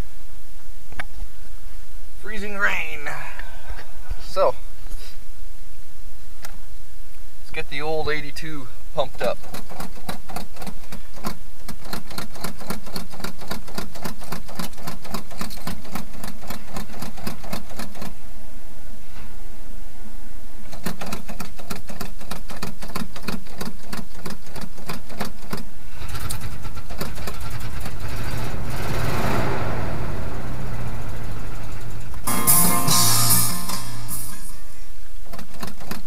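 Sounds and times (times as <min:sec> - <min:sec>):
engine running: 0:25.9 - 0:34.9.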